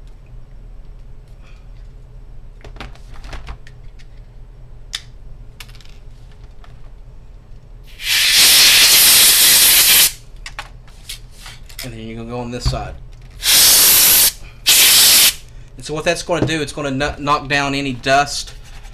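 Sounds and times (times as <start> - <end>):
compressed air spray hiss: 7.9 - 10.2, 13.4 - 15.5.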